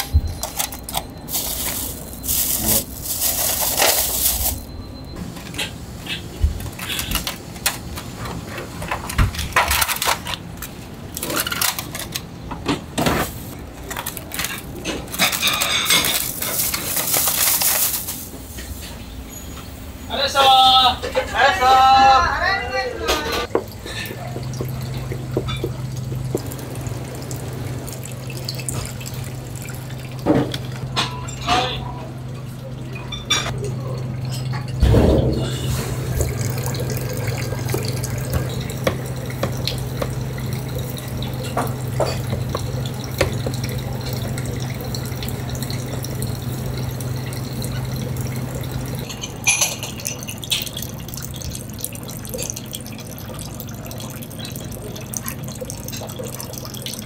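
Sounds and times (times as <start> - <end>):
water tap running: 0.0 - 4.7, 23.4 - 31.0, 32.0 - 57.0.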